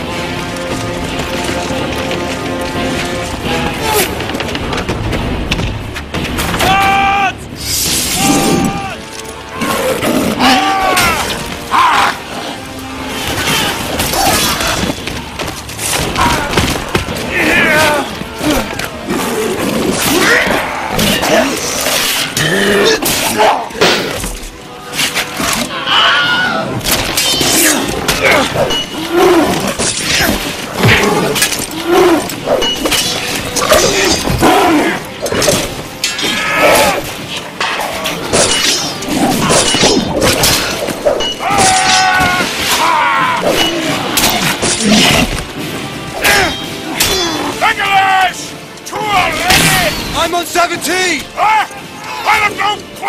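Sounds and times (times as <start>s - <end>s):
dramatic battle music: 0.0s - 53.0s
fighters shouting and grunting: 6.5s - 15.0s, 15.9s - 24.3s, 25.4s - 37.3s, 38.1s - 53.0s
fighters crying out: 10.4s - 14.8s, 41.2s - 45.3s
swords clashing: 26.8s - 34.6s, 35.3s - 45.4s, 46.2s - 47.5s.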